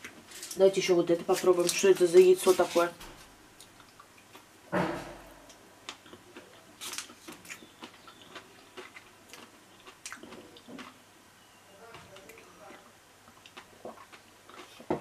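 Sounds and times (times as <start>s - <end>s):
chewing mouth clicks: 6.0s - 11.0s, 13.3s - 14.9s.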